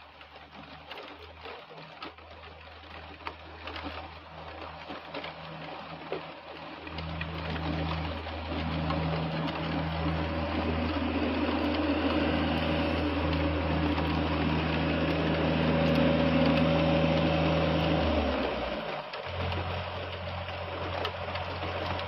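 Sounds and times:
heavy rain pouring: 0:00.0 - 0:22.0
low mechanical hum: 0:00.0 - 0:22.0.

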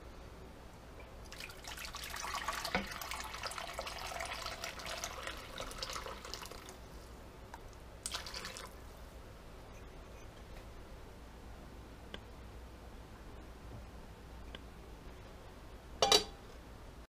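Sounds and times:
broth pouring into pot: 0:01.3 - 0:06.8, 0:08.0 - 0:08.9.

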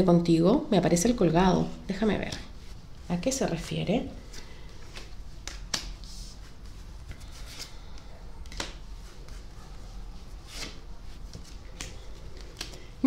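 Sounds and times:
cards sliding on cloth: 0:04.2 - 0:12.8.

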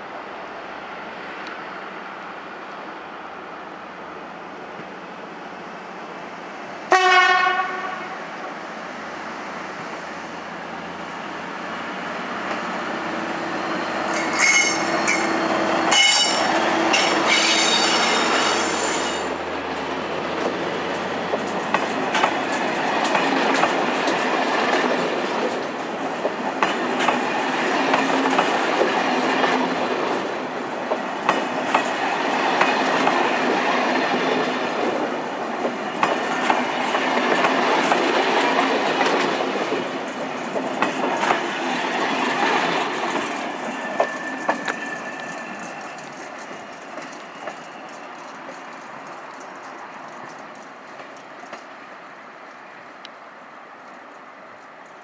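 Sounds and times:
train rumble: 0:00.1 - 0:55.0
train wheels squealing: 0:01.5 - 0:02.0, 0:13.4 - 0:19.4, 0:43.3 - 0:50.4
locomotive horn blast: 0:06.9 - 0:08.2
wheels clicking over rail joints: 0:19.2 - 0:51.8.

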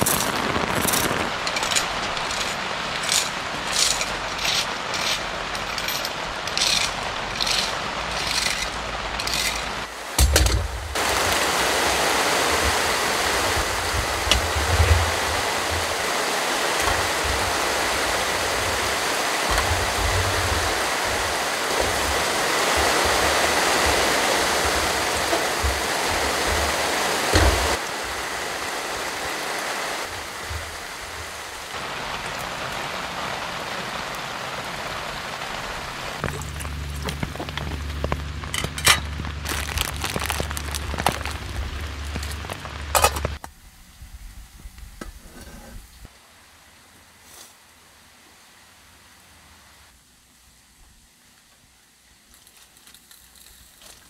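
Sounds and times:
cooking gear clinking: 0:00.0 - 0:10.6
low rumbles: 0:00.0 - 0:29.1, 0:30.0 - 0:46.1
heavy rain: 0:00.0 - 0:52.0
low steady hum: 0:35.6 - 0:52.4.

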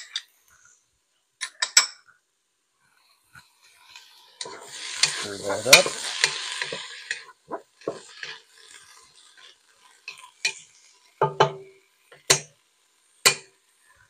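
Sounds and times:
faint sizzle: 0:00.0 - 0:14.0
wooden spoon scraping a pot: 0:03.9 - 0:11.6.

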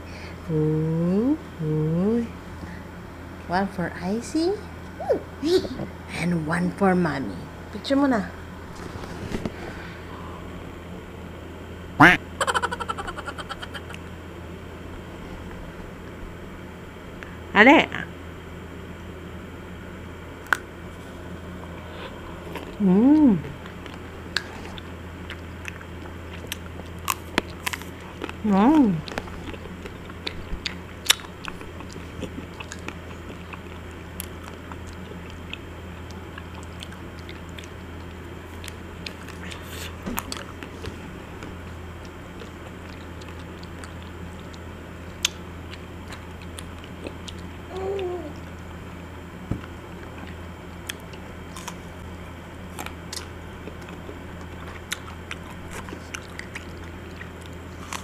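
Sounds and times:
steady low hum: 0:00.0 - 0:58.0
crunching and chewing: 0:22.0 - 0:22.8, 0:23.5 - 0:28.4, 0:29.0 - 0:47.6, 0:49.6 - 0:58.0.

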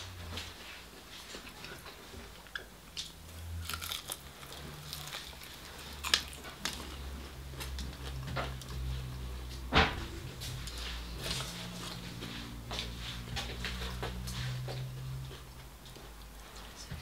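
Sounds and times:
person chewing chicken: 0:01.3 - 0:09.5.

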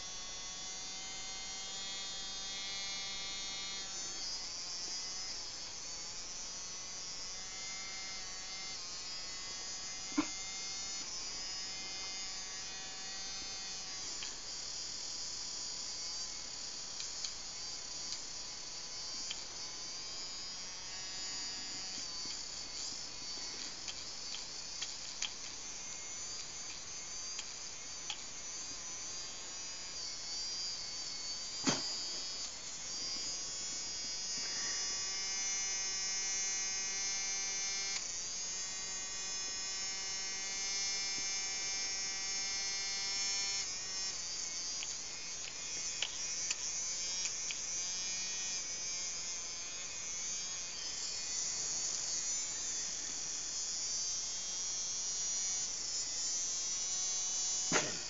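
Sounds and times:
nail trimmer motor whine: 0:00.0 - 0:58.0
sharp click: 0:57.7 - 0:58.0.

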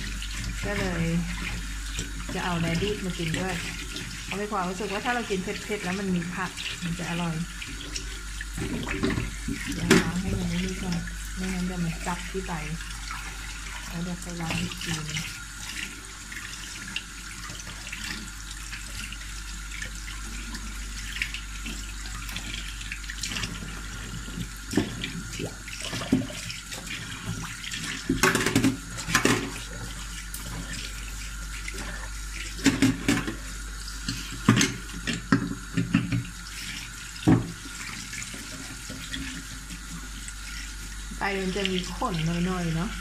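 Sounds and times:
water splashing from rinsing: 0:00.0 - 0:43.0
tap running into a steel sink: 0:34.0 - 0:36.3, 0:37.2 - 0:37.6.

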